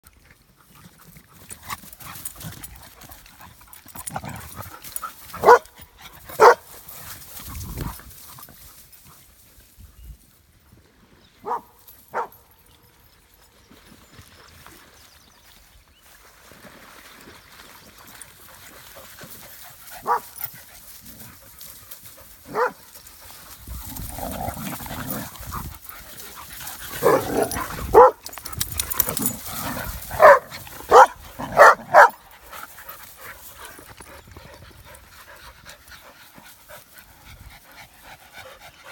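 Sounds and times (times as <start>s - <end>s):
dogs barking: 5.4s - 5.8s, 6.4s - 6.7s, 11.4s - 12.4s, 20.0s - 20.4s, 22.5s - 22.8s, 26.9s - 32.2s
dog panting: 32.0s - 38.9s.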